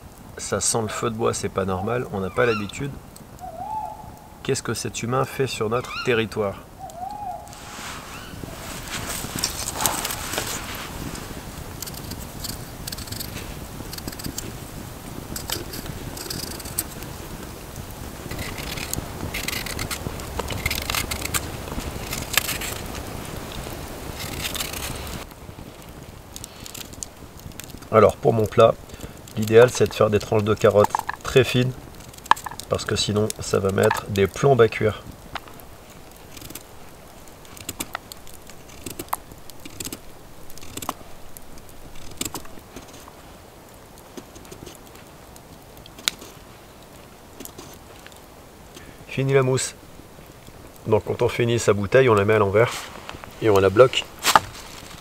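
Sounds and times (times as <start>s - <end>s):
peeler scraping vegetables: 11.8s - 14.4s, 15.4s - 17.0s, 18.3s - 22.9s, 24.1s - 25.2s
sharp clicks: 37.4s - 43.1s.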